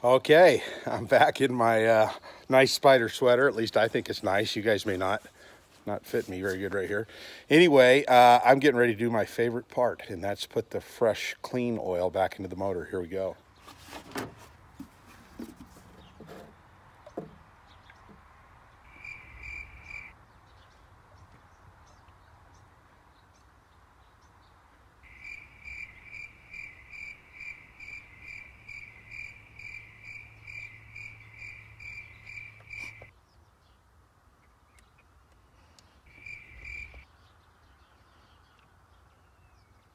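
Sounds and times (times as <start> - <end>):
high chirps: 18.9 - 20.1, 25.0 - 33.1.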